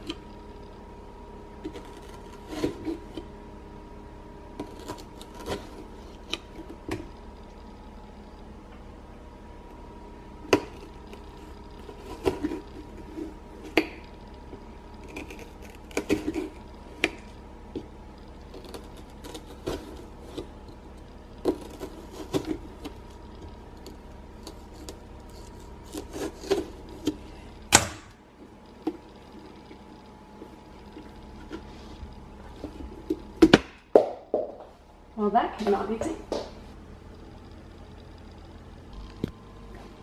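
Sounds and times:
knife cutting through pumpkin: 1.7 - 3.3, 23.8 - 27.3.

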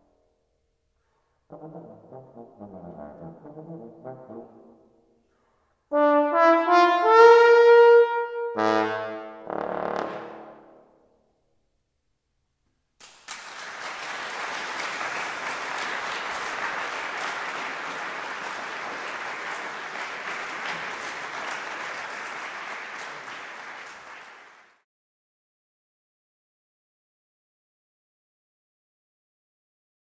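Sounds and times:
audience applauding: 13.0 - 24.8.

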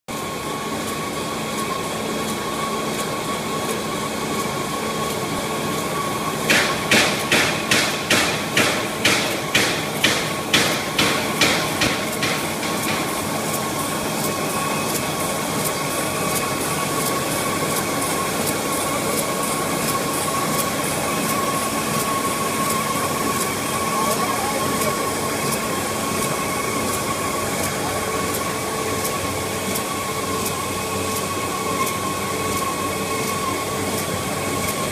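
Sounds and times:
machine mechanical hum: 0.1 - 34.9
sharp machine clacks: 6.4 - 29.8.

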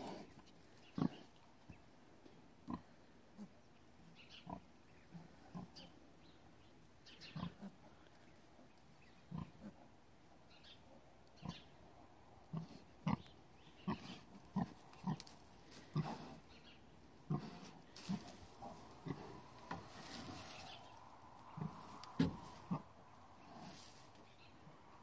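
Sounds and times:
pigs grunting: 0.0 - 1.4, 7.2 - 7.9, 9.2 - 9.9, 12.4 - 16.6, 17.2 - 20.4, 21.5 - 23.8.

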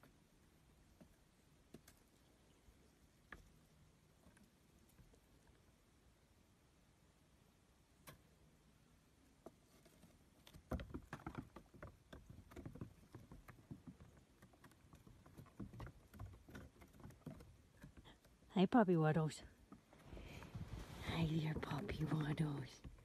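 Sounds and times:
goat hooves on wooden boards: 10.5 - 18.3.

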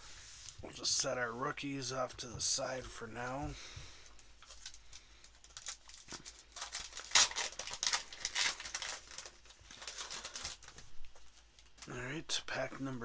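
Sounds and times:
foil wrapper crinkling: 4.1 - 12.0
crackly foil tearing: 4.4 - 12.0.

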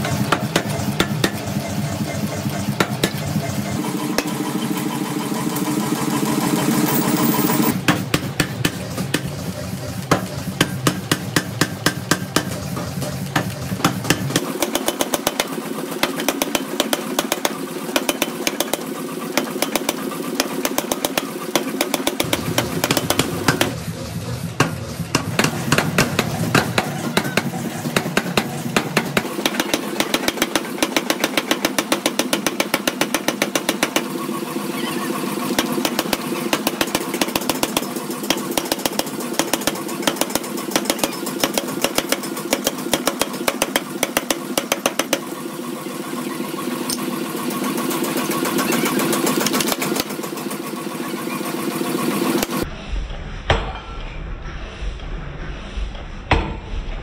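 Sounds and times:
power hammer striking hot steel: 0.0 - 23.8, 24.5 - 34.4, 35.5 - 45.5, 52.4 - 54.2
hammer machine running: 0.0 - 57.0.

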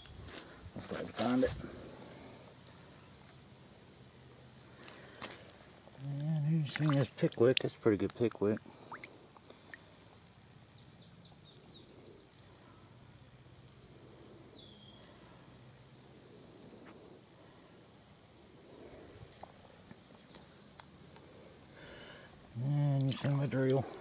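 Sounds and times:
second insect trill: 0.0 - 24.0
insect trilling: 5.9 - 10.0, 18.6 - 24.0
short insect chirps: 10.6 - 18.0, 19.0 - 24.0.

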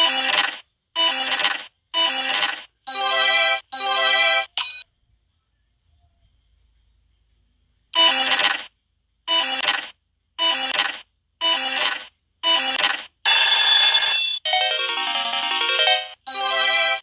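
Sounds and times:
slot machine chiming jingles: 13.4 - 17.0
slot machine win melody: 14.1 - 17.0.

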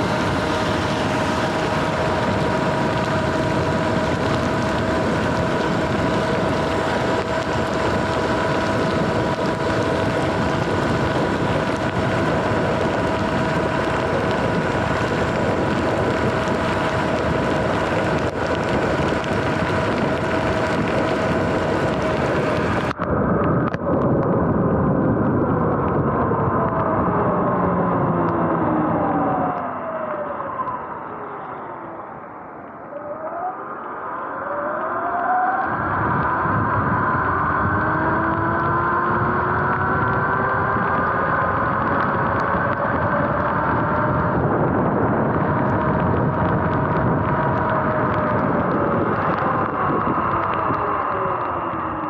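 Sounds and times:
electric motor whine: 0.0 - 23.0, 34.3 - 52.0
wind and tyre noise: 0.0 - 52.0.

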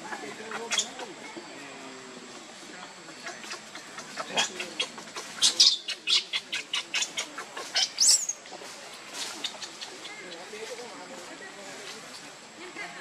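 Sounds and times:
baby monkey squeaking: 0.5 - 1.1, 3.2 - 8.5.

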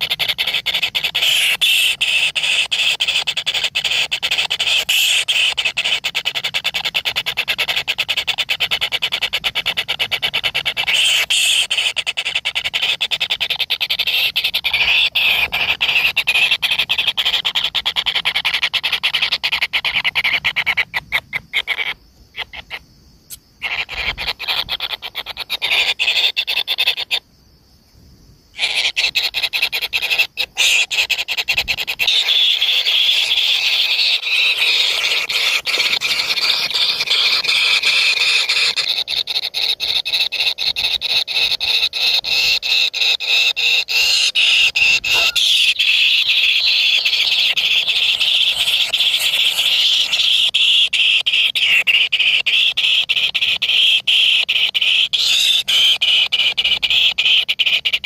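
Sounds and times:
nestlings churring calls: 0.0 - 22.8, 23.6 - 27.2, 28.6 - 58.0.

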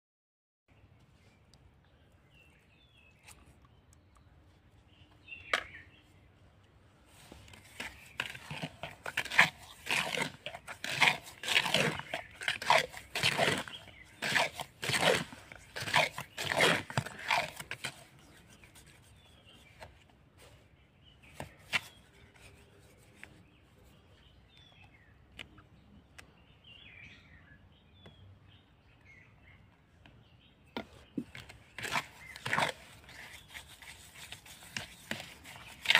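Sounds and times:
trowel scraping wet grout: 7.3 - 19.8, 31.1 - 35.9.

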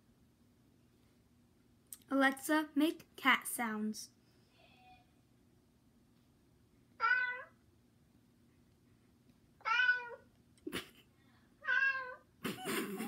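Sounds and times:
cat meowing: 7.0 - 7.6, 9.6 - 10.3, 11.6 - 12.2.

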